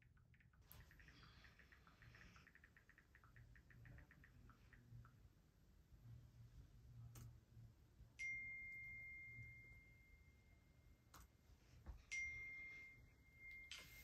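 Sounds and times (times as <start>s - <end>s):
faint clicks: 0.0s - 5.2s.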